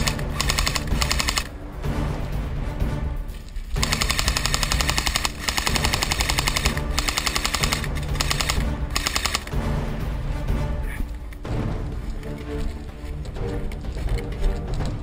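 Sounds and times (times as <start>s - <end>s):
airsoft rifle firing on full auto: 0.0s - 1.5s, 3.8s - 9.5s.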